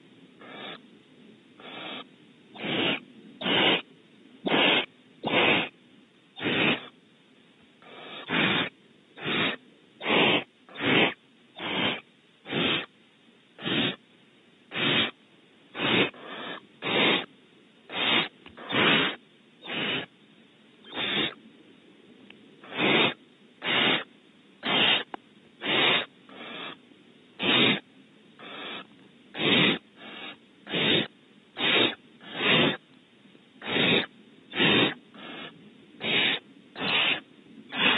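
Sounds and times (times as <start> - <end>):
owl chick begging hisses: 0.4 - 0.9, 1.6 - 5.8, 6.4 - 7.0, 7.8 - 12.9, 13.6 - 14.0, 14.7 - 17.3, 17.9 - 20.1, 20.8 - 21.4, 22.6 - 26.8, 27.4 - 32.8, 33.6 - 37.9.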